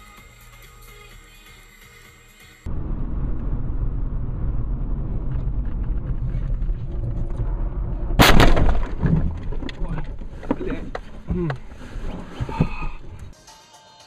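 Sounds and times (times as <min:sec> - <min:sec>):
car engine and road rumble: 0:02.6 - 0:13.4.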